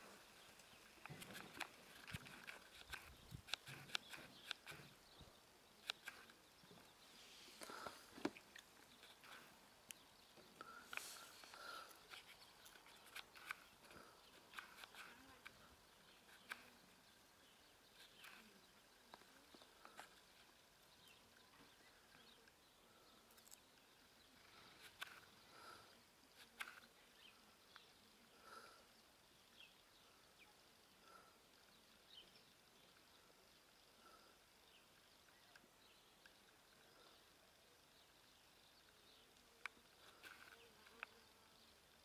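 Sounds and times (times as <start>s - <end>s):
faint chirps: 0.0s - 42.0s.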